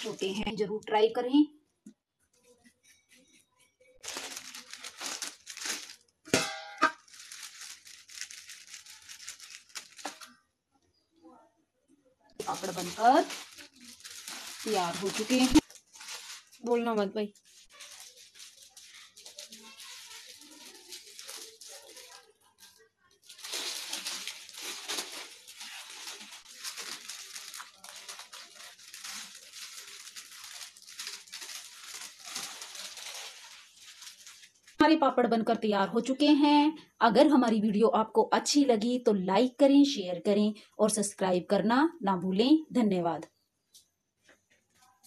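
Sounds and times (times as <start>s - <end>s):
plastic sheet rustling: 0.0s - 0.5s, 4.0s - 10.4s, 12.4s - 34.8s
plastic and foil crinkling: 0.0s - 0.8s, 2.4s - 10.4s, 12.3s - 34.8s.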